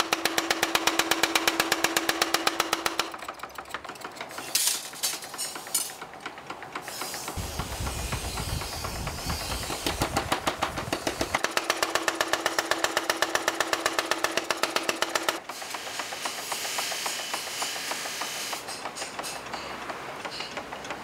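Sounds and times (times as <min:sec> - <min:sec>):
mechanical power hammer pounding: 0:00.0 - 0:21.0
forge fire hissing: 0:06.9 - 0:11.4, 0:15.5 - 0:18.8.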